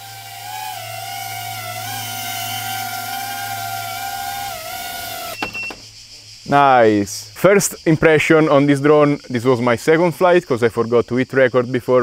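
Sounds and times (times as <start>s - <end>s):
quadcopter motors whining: 0.0s - 5.8s.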